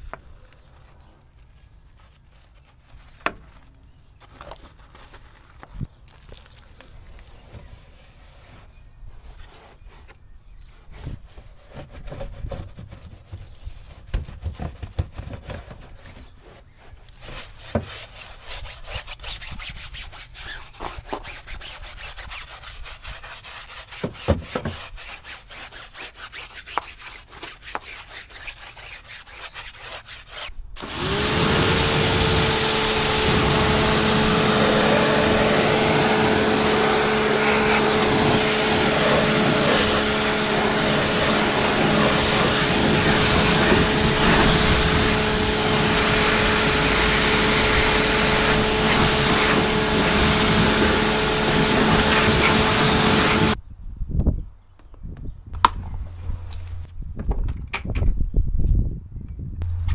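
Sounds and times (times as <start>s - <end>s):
machine motor whine: 30.8s - 53.6s
loud rushing noise: 31.0s - 53.6s.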